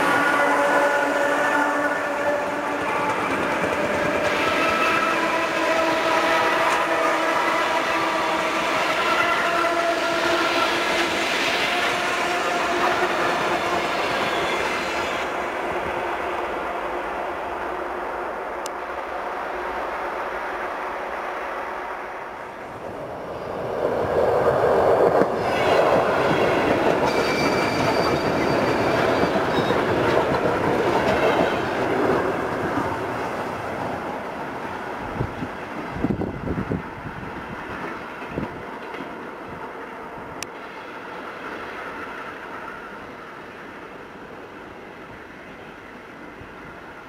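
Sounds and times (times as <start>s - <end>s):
electric train passing: 0.0s - 47.0s.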